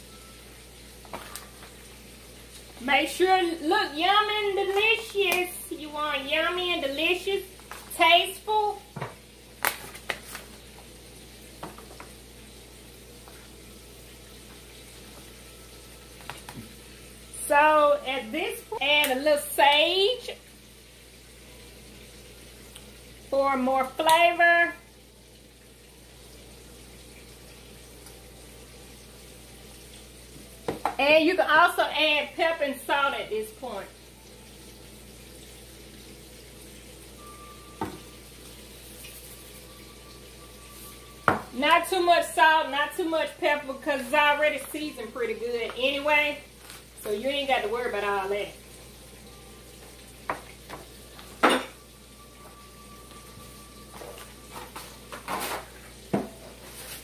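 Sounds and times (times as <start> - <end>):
faint room hiss: 0.0 - 57.0
shaker knocking on countertop: 41.2 - 41.5
utensil scraping foil pan: 54.5 - 55.9, 56.6 - 57.0.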